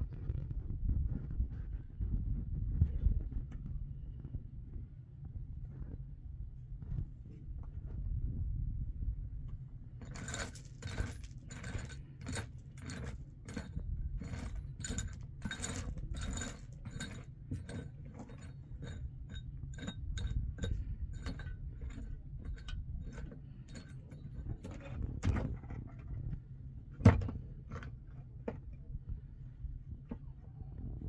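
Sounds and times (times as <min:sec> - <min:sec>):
low steady rumble: 0:00.0 - 0:31.0
metallic clinks and scrapes: 0:10.0 - 0:25.1.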